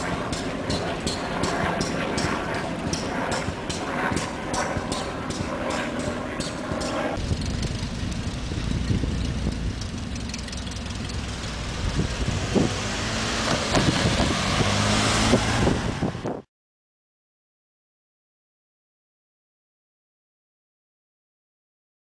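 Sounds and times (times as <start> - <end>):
small engines droning: 0.0 - 16.4
sharp metallic clacks: 0.1 - 11.6.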